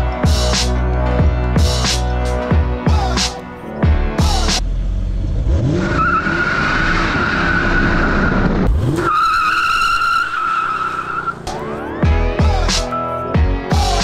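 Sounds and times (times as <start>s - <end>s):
car engine revving: 3.0s - 14.0s.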